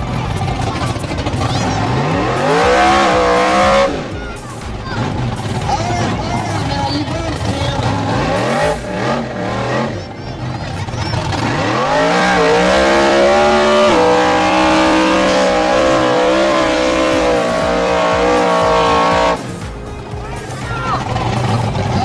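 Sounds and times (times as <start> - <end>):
buggy engine revving: 0.0 - 22.0
wheels spinning: 0.0 - 22.0.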